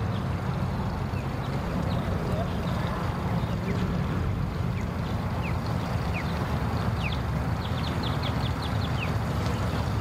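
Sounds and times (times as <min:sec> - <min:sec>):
birds chirping: 0:04.5 - 0:10.0.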